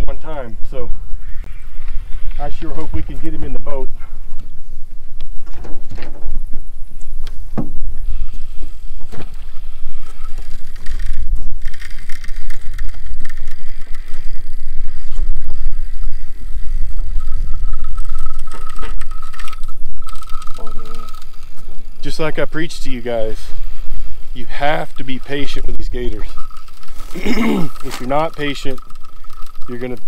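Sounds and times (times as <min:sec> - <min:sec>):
thin steady whine: 0:00.0 - 0:30.0
wind buffeting microphone: 0:00.0 - 0:30.0.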